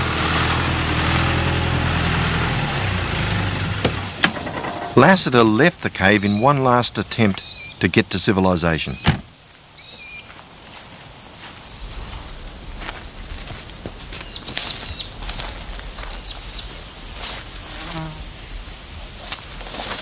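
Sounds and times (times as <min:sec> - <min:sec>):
high-pitched insect trill: 0:04.0 - 0:20.0
low rumble: 0:11.7 - 0:19.8.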